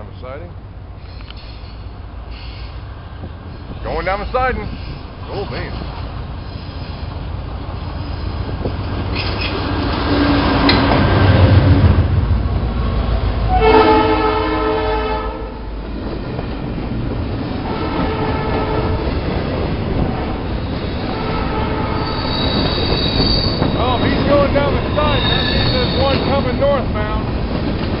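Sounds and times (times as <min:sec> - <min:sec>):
locomotive engine rumble: 0:00.0 - 0:28.0
faint wheel squeal: 0:01.0 - 0:02.8, 0:22.0 - 0:24.0, 0:24.8 - 0:26.4
train horn blast: 0:13.5 - 0:15.7, 0:17.6 - 0:19.2, 0:21.0 - 0:23.6.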